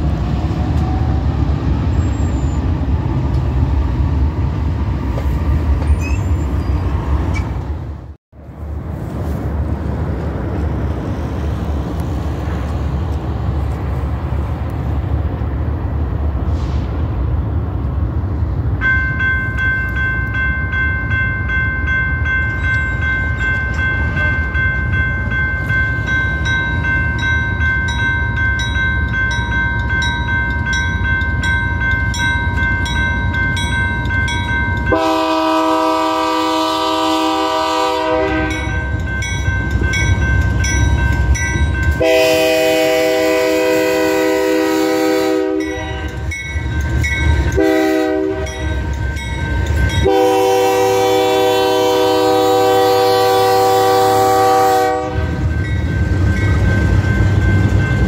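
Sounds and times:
railroad crossing bell ringing: 18.7 - 58.0
train horn blast: 34.9 - 38.8, 42.0 - 46.2, 47.6 - 48.8, 50.0 - 55.4.

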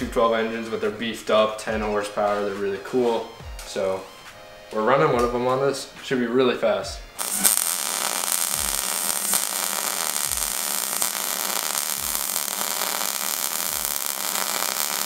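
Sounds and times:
welding arc crackling hiss: 7.2 - 15.0.

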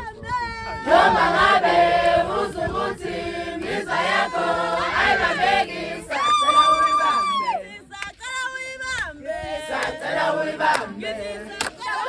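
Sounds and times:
group of voices chanting: 0.8 - 7.2.

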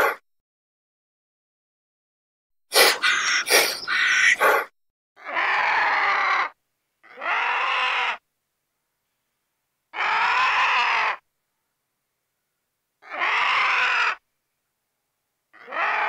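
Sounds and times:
animal calling with rasping tone: 2.7 - 8.2, 9.9 - 11.2, 13.0 - 14.2, 15.6 - 16.0.

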